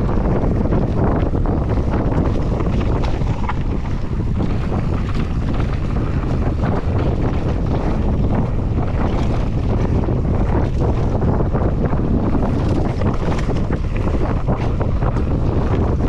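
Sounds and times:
bike knocks and rattles: 0.0s - 16.0s
tyres rumbling on dirt: 0.0s - 16.0s
wind buffeting microphone: 0.0s - 16.0s.

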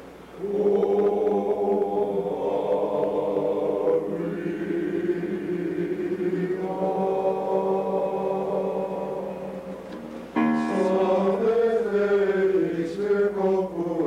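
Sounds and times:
men's choir singing chords: 0.4s - 14.0s.

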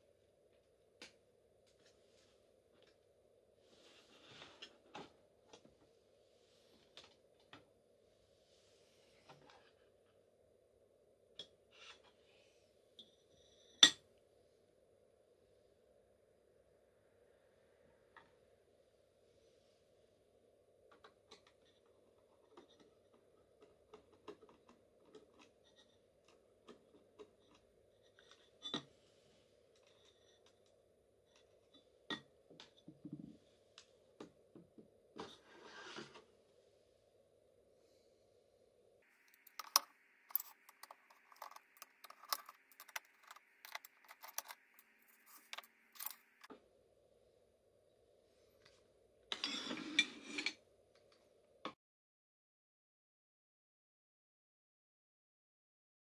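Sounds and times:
screwdriver clicking and scraping: 39.2s - 46.5s.

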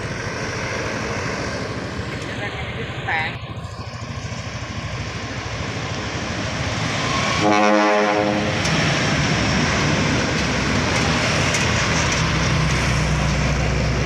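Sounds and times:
truck driving past: 0.0s - 14.0s
truck horn: 7.3s - 8.6s.

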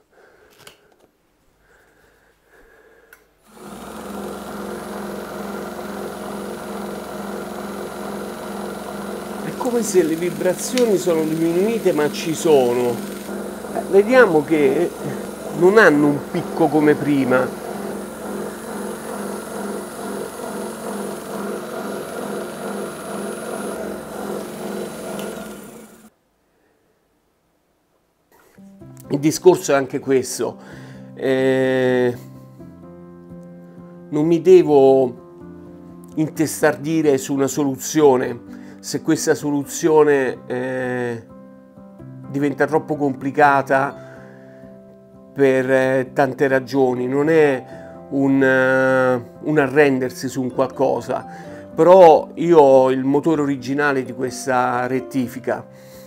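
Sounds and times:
grinder motor humming: 3.5s - 26.1s.

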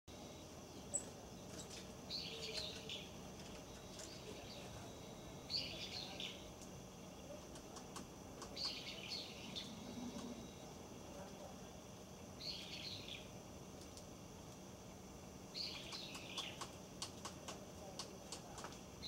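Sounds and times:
small bird chirping: 0.1s - 11.3s, 12.3s - 14.1s, 15.4s - 19.0s
bird tapping on seed: 15.7s - 18.9s.

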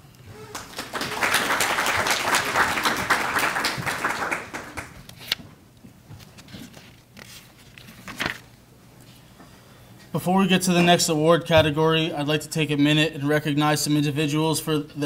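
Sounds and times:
audience applauding: 0.3s - 5.1s.

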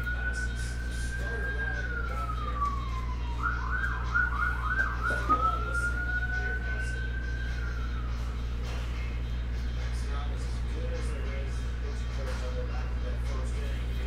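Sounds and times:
emergency vehicle siren: 0.0s - 9.2s.

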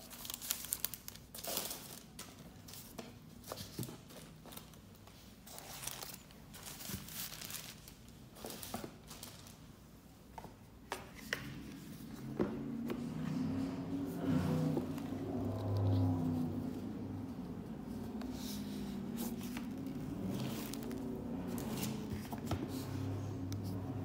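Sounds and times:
paper rustling and crinkling: 0.0s - 9.8s, 18.3s - 23.1s.

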